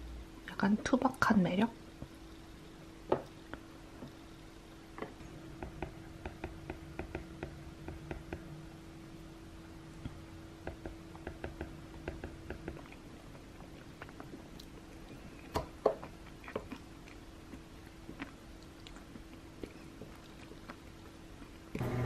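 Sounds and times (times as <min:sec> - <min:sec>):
faint steady hum: 0:00.0 - 0:22.0
person chewing bread: 0:12.7 - 0:21.8.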